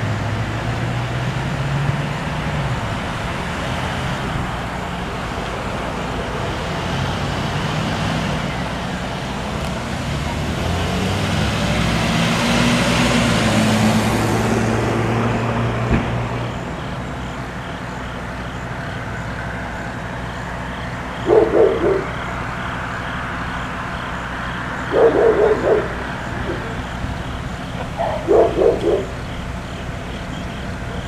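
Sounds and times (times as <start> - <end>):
vehicle engine humming: 0.0 - 31.0
dog barking: 21.2 - 22.2, 24.9 - 26.9, 27.7 - 29.2.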